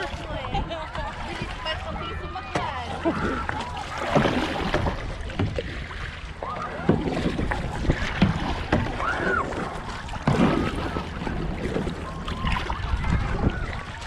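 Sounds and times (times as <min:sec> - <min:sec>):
faint voices: 0:00.0 - 0:04.8, 0:06.3 - 0:14.0
paddle splashing water: 0:00.0 - 0:14.0
wind rumble on microphone: 0:03.2 - 0:14.0.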